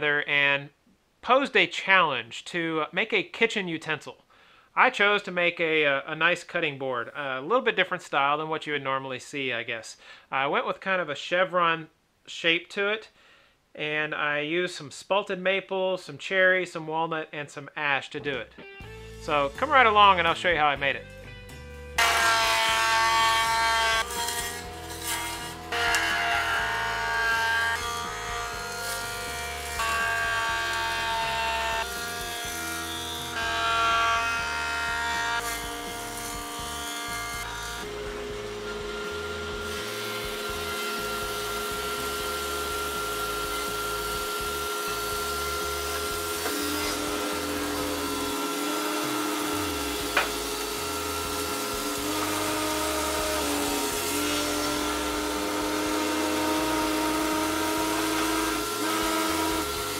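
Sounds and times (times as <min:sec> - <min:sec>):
background music chords: 0:18.6 - 0:33.1, 0:37.4 - 0:43.0.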